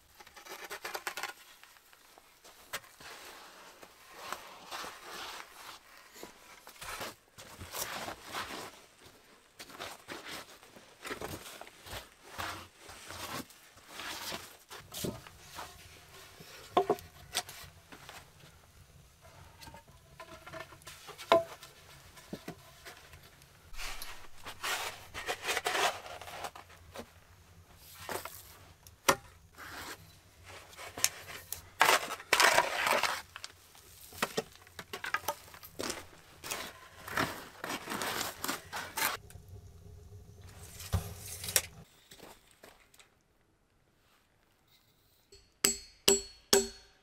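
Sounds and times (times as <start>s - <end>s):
shovel scraping sandy soil: 23.7s - 26.7s, 29.6s - 33.3s.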